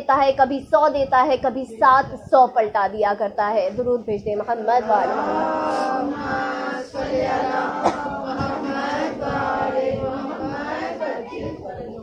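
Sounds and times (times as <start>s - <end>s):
congregation chanting in unison: 4.8s - 12.0s.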